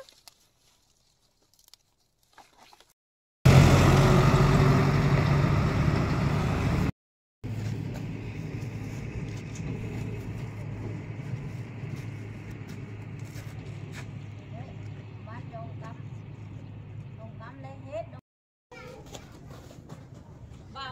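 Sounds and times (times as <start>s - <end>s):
dump truck driving past: 3.5s - 6.9s.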